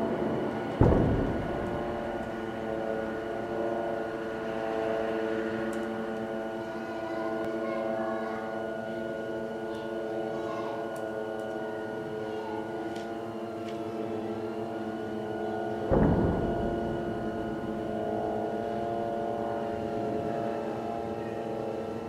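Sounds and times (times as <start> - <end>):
drone of held tones: 0.0 - 22.0.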